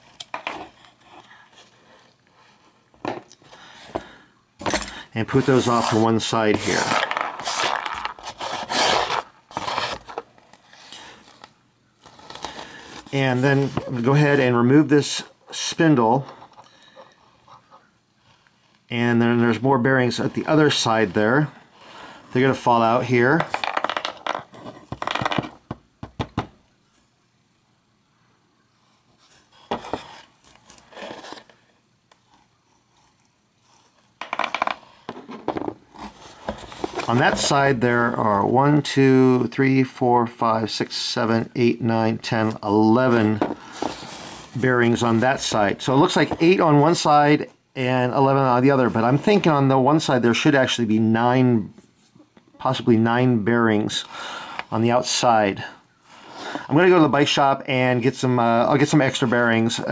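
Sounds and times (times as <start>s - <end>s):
hand scraping cardboard: 5.3s - 10.2s.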